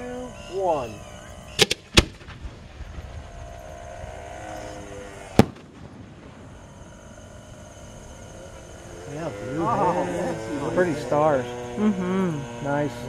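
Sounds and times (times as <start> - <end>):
firework shell bang: 1.6 - 3.1, 5.3 - 6.5.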